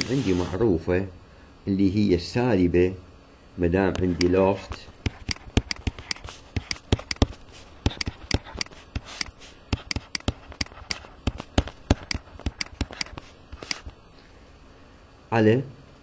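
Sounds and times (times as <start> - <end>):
stylus tapping on tablet screen: 5.0 - 14.0.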